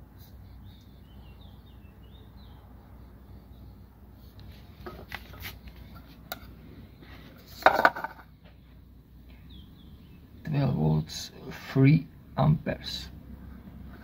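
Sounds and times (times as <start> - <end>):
faint bird chirps: 0.2 - 3.9.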